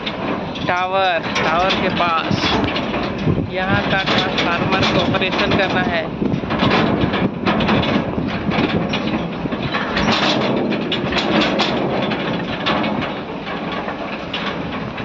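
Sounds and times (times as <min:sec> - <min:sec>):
road and wind noise: 0:00.0 - 0:15.0.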